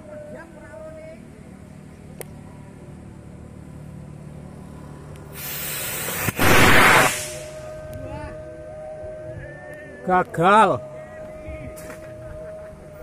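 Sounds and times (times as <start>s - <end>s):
rocket motor igniting with hiss: 5.3s - 7.7s
rocket motor rushing roar: 5.3s - 7.7s.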